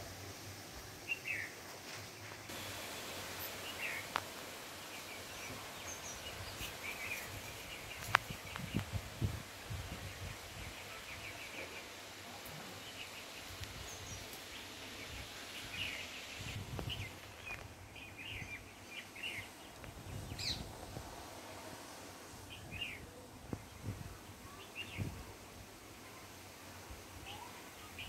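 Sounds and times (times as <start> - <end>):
wind gusting through trees: 0.0 - 28.0
wind buffeting microphone: 6.2 - 10.9, 16.4 - 17.2, 19.8 - 21.3, 22.6 - 24.3.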